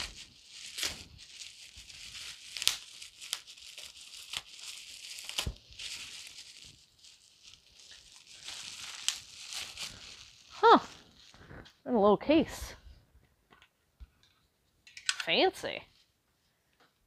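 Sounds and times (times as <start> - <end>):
packaging rustling: 0.0 - 11.8.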